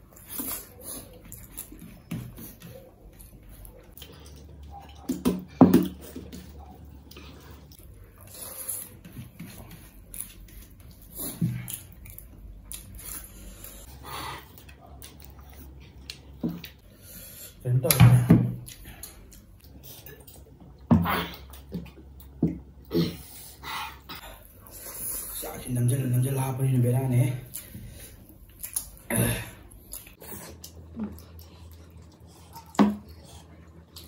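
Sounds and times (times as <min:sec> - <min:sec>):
chewing: 0:00.0 - 0:16.9, 0:27.3 - 0:29.1, 0:29.7 - 0:34.0.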